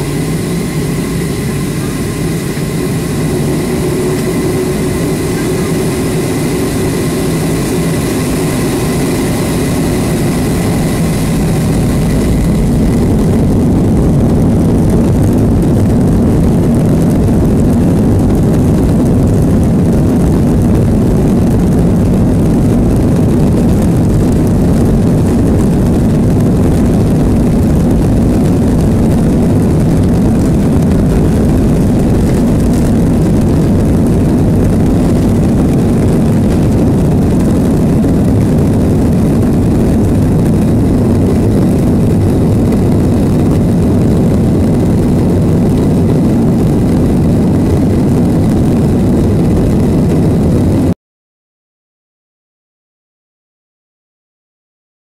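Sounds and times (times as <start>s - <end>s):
thin high whine: 0.0s - 18.9s
jet engine low rumble: 0.0s - 51.0s.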